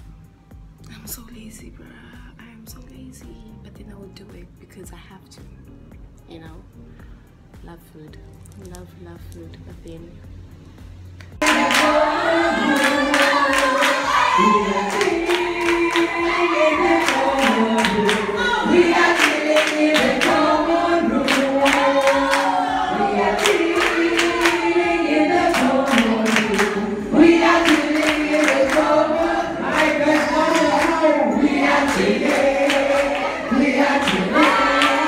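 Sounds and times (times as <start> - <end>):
hand claps: 11.2 - 12.1, 12.7 - 14.3, 14.9 - 18.3, 19.0 - 20.5, 21.2 - 24.8, 25.4 - 26.8, 27.4 - 29.0
crowd singing in unison: 11.4 - 35.0.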